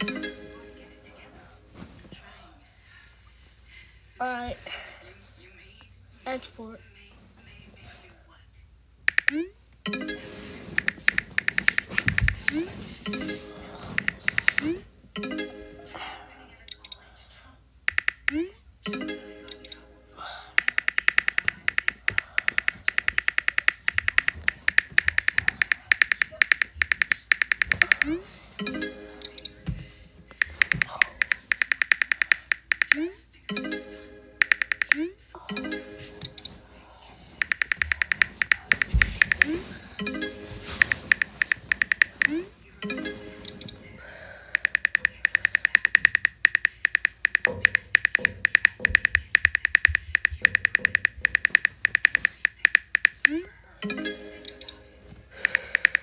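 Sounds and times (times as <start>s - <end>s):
on-screen keyboard taps: 10.8s - 12.7s, 14.0s - 14.7s, 17.9s - 18.4s, 20.6s - 28.1s, 30.3s - 33.0s, 34.4s - 35.0s, 37.4s - 39.6s, 40.7s - 42.4s, 44.6s - 53.4s, 54.4s - 56.0s.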